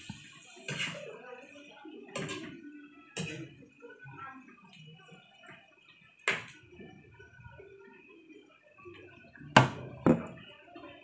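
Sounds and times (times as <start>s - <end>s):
metal utensil clanking on frying pan: 2.1s - 2.5s.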